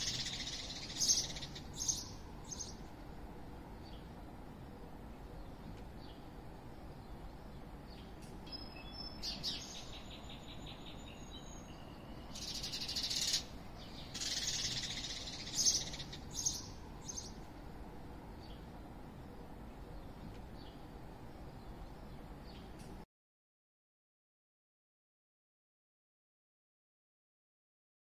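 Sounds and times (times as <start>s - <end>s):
low background hum: 0.0s - 23.0s
songbirds twittering: 0.0s - 23.0s
buzzy bird trills: 12.3s - 17.3s.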